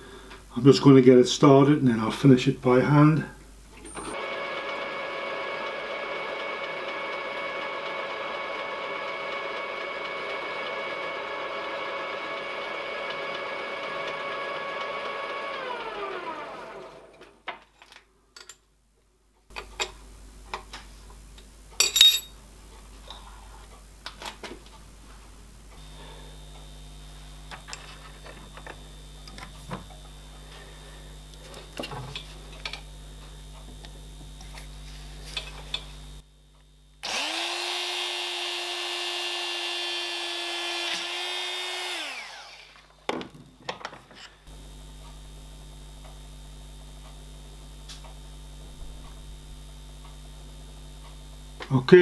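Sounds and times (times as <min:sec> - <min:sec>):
faint steady hum: 0:00.0 - 0:04.2, 0:17.8 - 0:37.0, 0:42.1 - 0:52.0
milling machine spindle whine: 0:04.2 - 0:17.2, 0:37.0 - 0:43.1.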